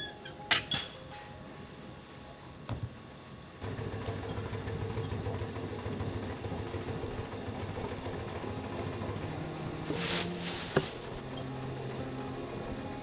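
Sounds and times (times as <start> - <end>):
pug mill humming: 3.6 - 10.0.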